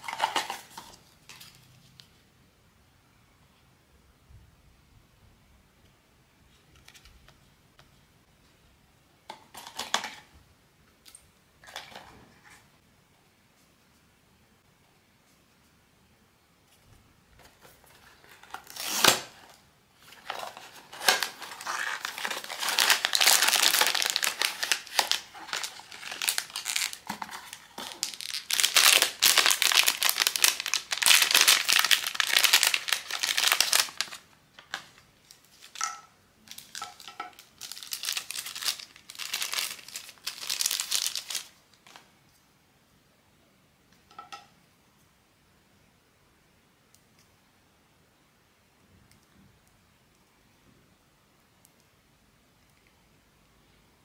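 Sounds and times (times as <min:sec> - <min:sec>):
crinkly packaging tearing: 0:00.0 - 0:01.6, 0:17.8 - 0:35.8, 0:36.5 - 0:42.0
packaging crinkling and rustling: 0:00.0 - 0:02.0, 0:17.4 - 0:42.1.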